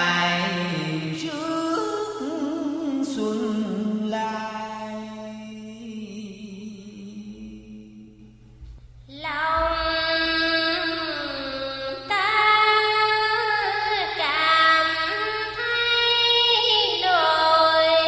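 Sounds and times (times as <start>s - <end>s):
woman chanting in sung melody: 9.1s - 18.0s.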